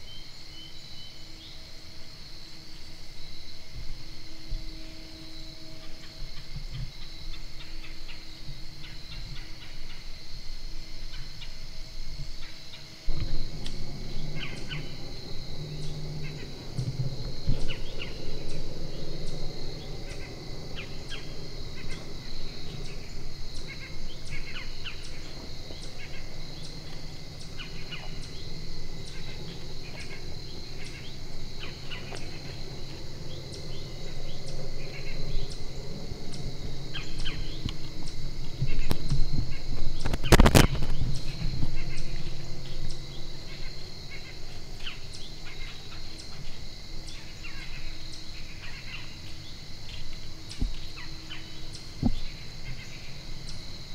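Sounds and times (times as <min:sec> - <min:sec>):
faint high ticking: 0:12.2 - 0:53.6
small birds chirping: 0:12.4 - 0:53.8.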